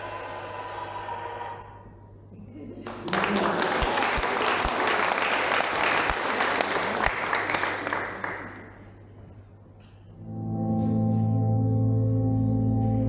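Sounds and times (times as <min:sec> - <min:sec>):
audience clapping: 0:02.8 - 0:09.0.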